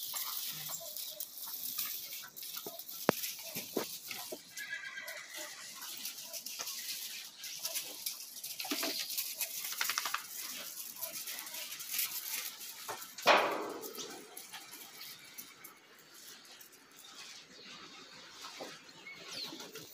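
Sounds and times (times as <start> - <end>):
paws scuffing gravel: 0.0 - 13.1.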